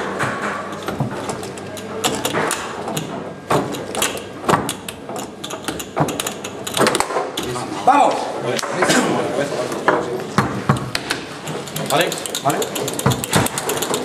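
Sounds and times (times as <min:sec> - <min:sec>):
foosball clacks: 0:00.0 - 0:07.6, 0:09.8 - 0:14.0.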